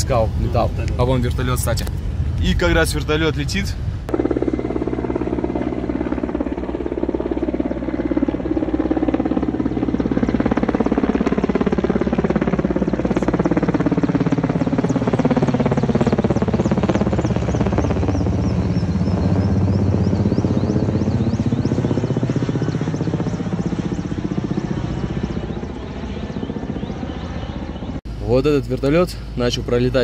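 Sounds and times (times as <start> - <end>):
helicopter engine hum: 0.0 - 30.0
helicopter rotor thudding: 3.8 - 27.9.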